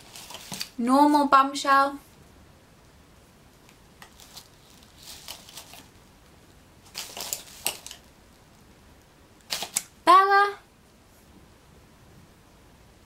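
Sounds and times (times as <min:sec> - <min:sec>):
packaging rustling: 0:00.0 - 0:00.8, 0:04.0 - 0:06.0, 0:06.8 - 0:08.6, 0:09.4 - 0:09.9.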